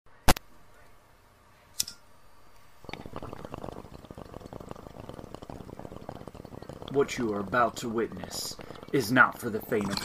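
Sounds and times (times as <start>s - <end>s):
dense crackling of small pops: 2.8s - 10.0s.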